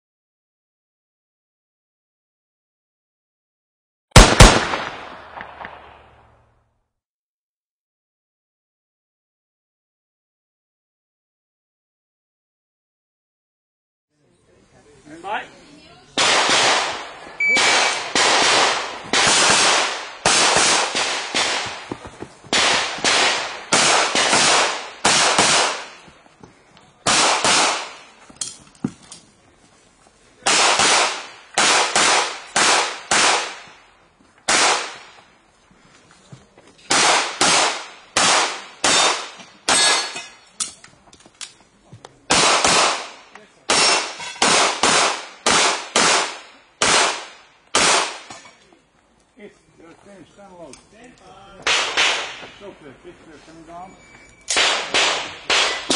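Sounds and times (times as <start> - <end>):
handgun shots with echo: 4.2 - 5.8, 54.5 - 55.9.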